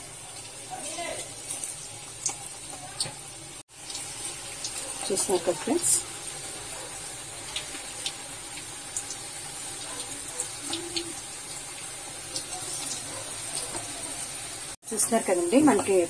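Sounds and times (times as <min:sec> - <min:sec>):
batter deep-frying in oil: 0:00.0 - 0:16.0
oil crackles and pops: 0:00.2 - 0:14.8.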